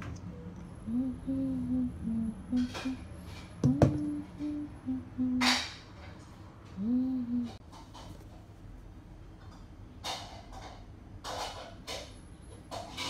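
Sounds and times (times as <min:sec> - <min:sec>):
person humming: 0:00.8 - 0:05.6, 0:06.7 - 0:07.6.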